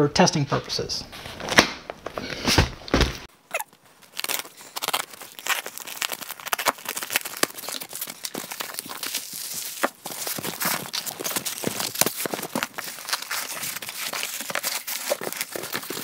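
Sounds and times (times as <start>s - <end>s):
cardboard crinkling and scraping: 1.1s - 16.0s
packing tape tearing: 3.5s - 16.0s.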